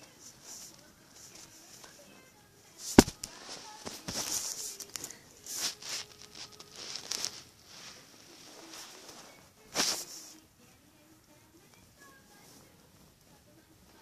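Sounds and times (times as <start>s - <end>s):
rustling and scuffing: 2.8s - 10.4s.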